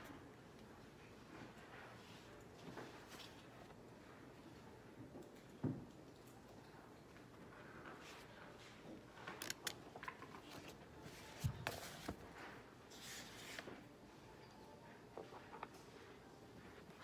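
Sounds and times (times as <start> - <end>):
pages rustling and turning: 9.2 - 13.9.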